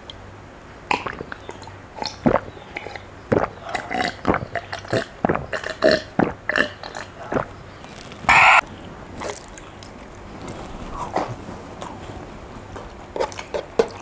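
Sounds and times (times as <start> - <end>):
person gulping water: 0.9 - 7.6.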